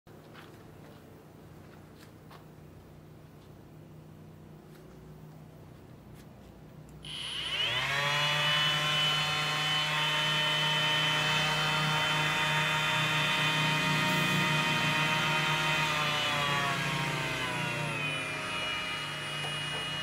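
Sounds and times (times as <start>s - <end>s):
orbital sander sanding wood: 7.1s - 20.0s.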